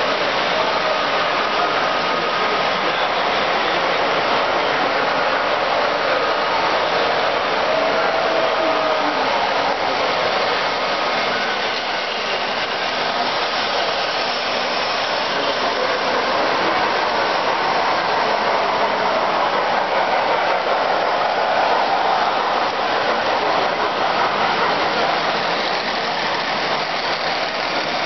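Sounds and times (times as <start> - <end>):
toy trains whirring on metal track: 0.0 - 28.0.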